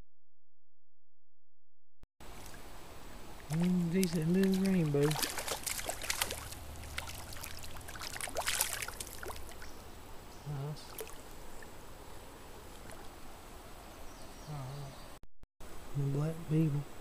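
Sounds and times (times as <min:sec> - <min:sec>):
running stream water: 0:02.2 - 0:14.2
fish splashing at surface: 0:03.4 - 0:09.7.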